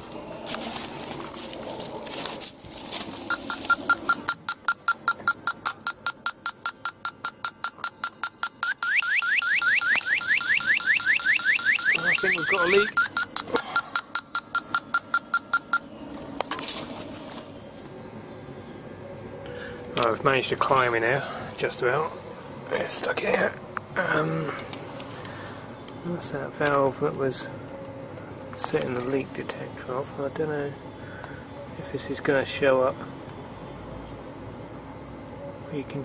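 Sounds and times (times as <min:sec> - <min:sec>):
leak detector alarm chirps: 0:03.3 - 0:15.9
leak detector beeping rapidly: 0:03.3 - 0:15.9.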